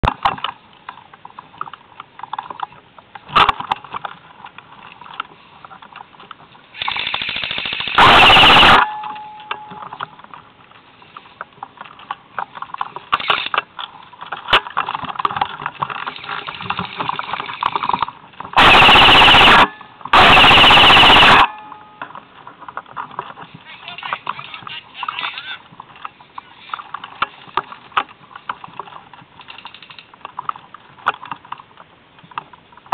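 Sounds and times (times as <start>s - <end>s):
airsoft rifle firing bursts: 6.8s - 9.0s, 18.6s - 21.6s.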